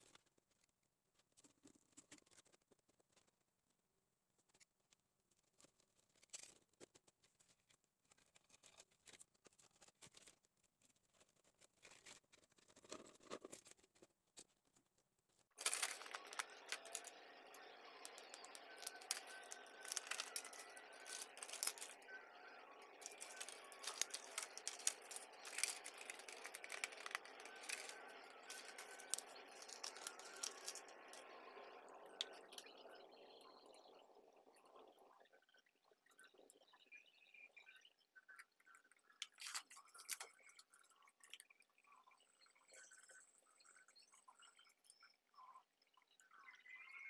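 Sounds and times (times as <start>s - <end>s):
scissors cutting plastic: 15.6s - 31.2s, 39.2s - 40.3s
masking tape wrapping: 15.6s - 31.3s
plastic jug crinkling: 15.6s - 31.3s.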